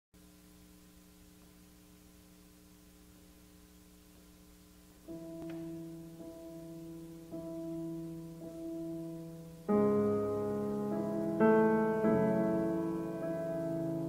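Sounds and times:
grand piano playing: 5.0 - 14.0.

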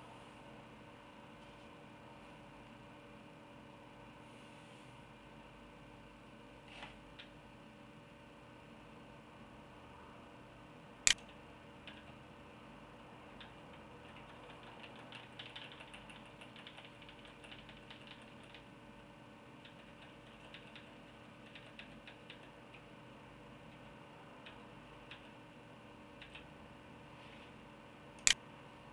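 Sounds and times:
low steady hum: 0.0 - 28.9
sharp click: 11.1 - 11.4
faint irregular clicking and ticking: 13.4 - 18.7, 19.6 - 22.9, 23.6 - 25.4, 26.2 - 26.5.

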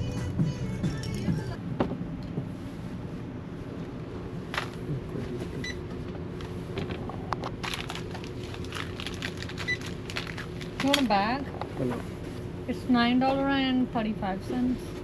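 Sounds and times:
low steady hum: 0.0 - 15.0
items being handled: 4.5 - 5.4, 6.4 - 12.4.

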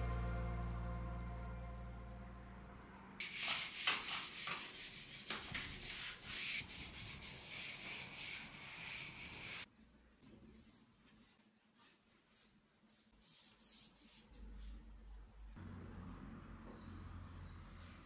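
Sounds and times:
background music: 0.0 - 3.2
scrubbing against a surface: 3.2 - 9.7.

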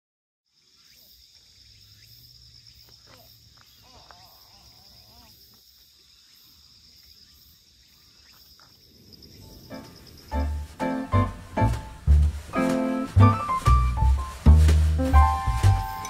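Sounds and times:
insect chorus shrill pulsing: 0.5 - 11.1.

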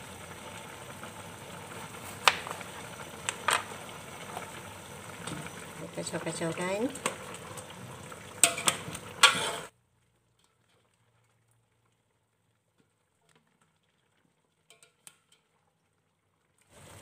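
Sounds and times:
food bubbling in pot: 0.0 - 17.0
spatula stirring in pot: 7.0 - 9.7.

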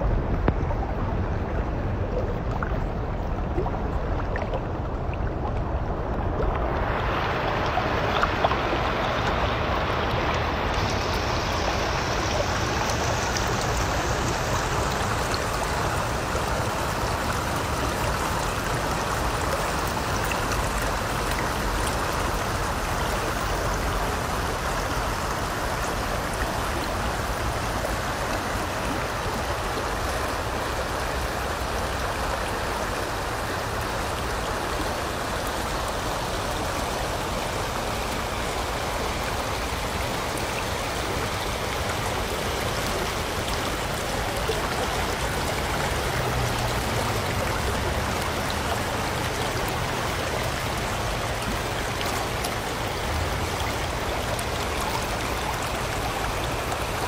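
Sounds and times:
stream water rushing over rocks: 0.0 - 57.0.

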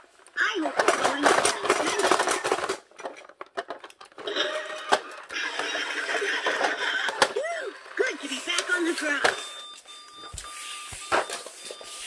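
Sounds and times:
electronic toy sound from speaker: 4.3 - 12.0.

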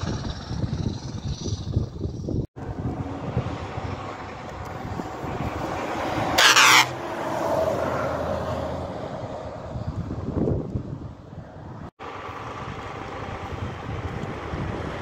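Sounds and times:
heavy truck driving past: 2.6 - 10.3.

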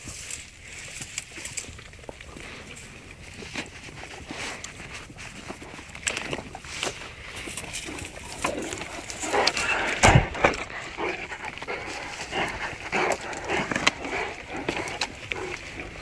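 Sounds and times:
dogs snuffling and chewing grass: 0.0 - 16.0
loud thump: 10.0 - 10.6.

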